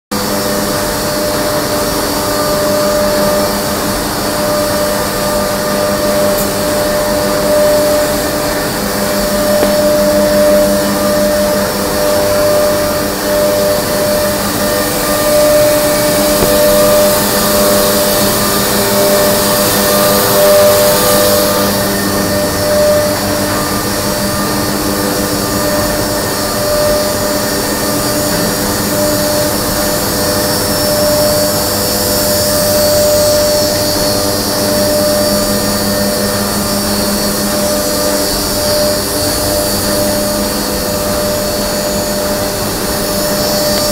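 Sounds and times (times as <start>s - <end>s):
binding machine droning: 0.2s - 43.9s
machine hiss: 0.2s - 43.9s.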